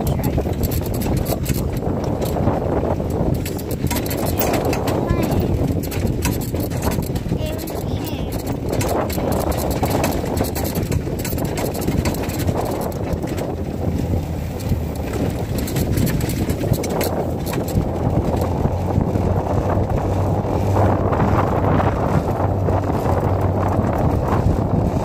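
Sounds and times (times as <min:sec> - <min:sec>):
golf cart running rumble: 0:00.0 - 0:25.0
wind buffeting microphone: 0:00.0 - 0:25.0.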